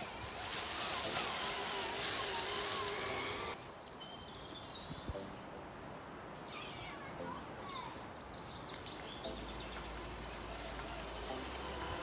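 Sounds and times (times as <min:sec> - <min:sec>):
electric motor whining: 0:00.0 - 0:03.6, 0:10.4 - 0:12.0
tyres crunching dry leaves: 0:00.0 - 0:04.0, 0:08.8 - 0:12.0
birds chirping: 0:00.0 - 0:12.0.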